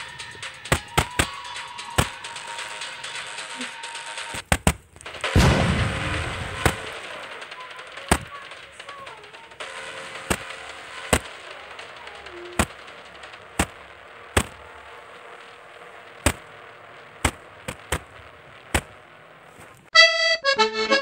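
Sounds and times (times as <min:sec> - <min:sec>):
sharp cracks: 0:00.0 - 0:19.9
loud accordion music: 0:19.9 - 0:21.0.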